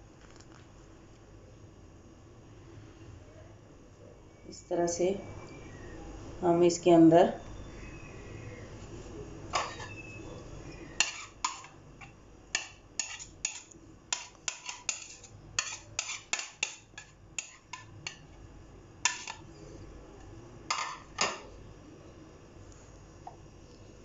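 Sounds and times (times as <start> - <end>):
metal spoon scraping ceramic plate: 9.6 - 10.0, 11.0 - 11.8, 12.6 - 18.2, 19.1 - 19.4.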